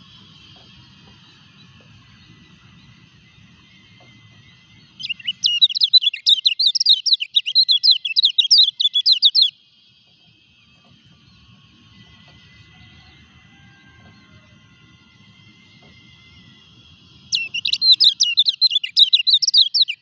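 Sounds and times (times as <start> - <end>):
bird chirping rapidly: 4.4 - 9.6, 16.6 - 20.0.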